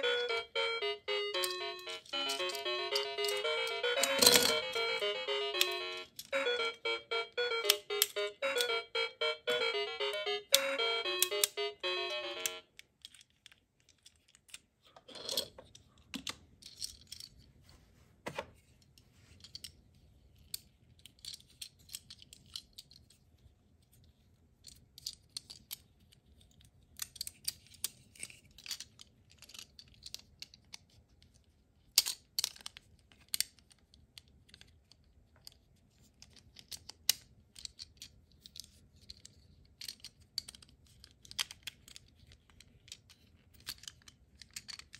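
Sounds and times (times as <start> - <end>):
short electronic tune: 0.0 - 12.5
plastic toy parts clicking: 1.4 - 6.7, 7.5 - 8.8, 10.0 - 11.7, 12.4 - 17.5, 18.8 - 44.9.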